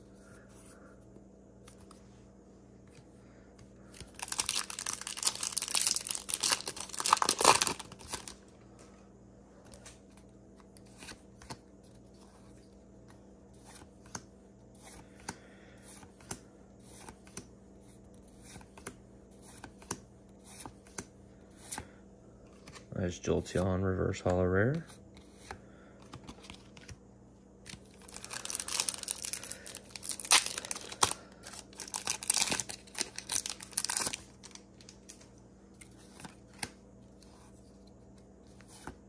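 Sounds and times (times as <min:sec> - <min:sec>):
foil wrapper crinkling and tearing: 0:04.0 - 0:08.4, 0:27.8 - 0:35.2.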